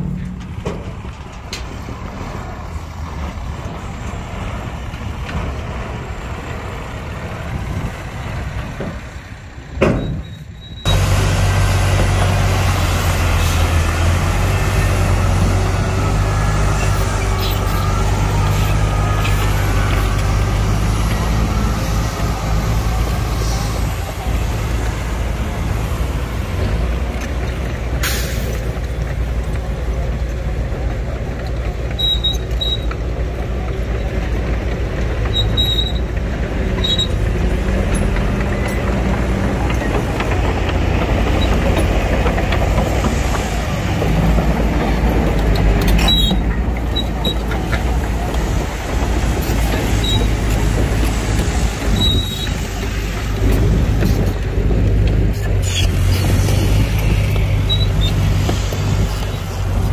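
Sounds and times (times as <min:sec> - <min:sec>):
diesel engines droning: 0:00.0 - 0:59.9
short high-pitched squeaks: 0:10.0 - 0:11.0, 0:31.9 - 0:33.0, 0:35.3 - 0:36.1, 0:36.8 - 0:37.2, 0:45.9 - 0:47.4, 0:49.8 - 0:50.4, 0:51.9 - 0:52.6, 0:55.4 - 0:58.3.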